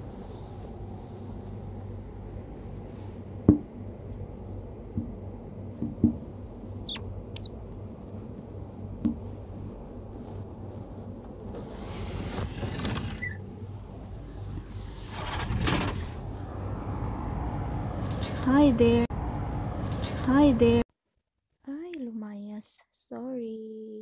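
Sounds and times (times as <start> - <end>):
steady low hum: 0.0 - 12.4, 13.4 - 20.9
high squeaky chirping: 6.6 - 7.6
rushing noise: 15.0 - 18.3.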